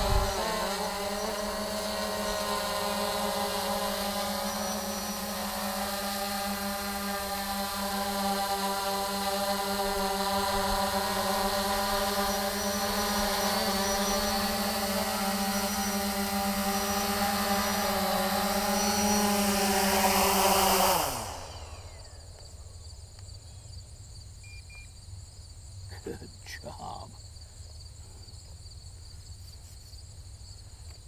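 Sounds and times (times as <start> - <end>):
drone propellers whining: 0.0 - 22.4.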